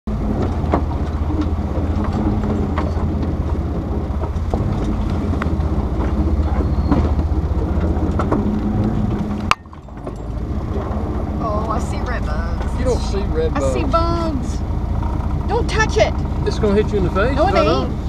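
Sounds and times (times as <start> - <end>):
vehicle engine rumble: 0.0 - 18.0
vehicle body rattles: 0.1 - 18.0.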